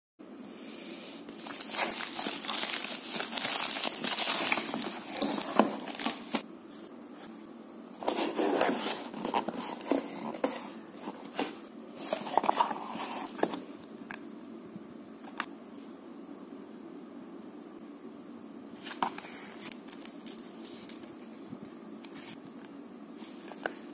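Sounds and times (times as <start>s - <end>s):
cardboard box and paper rustling: 1.4s - 6.4s, 8.0s - 13.6s
plastic bag crinkling and tearing: 1.4s - 6.4s.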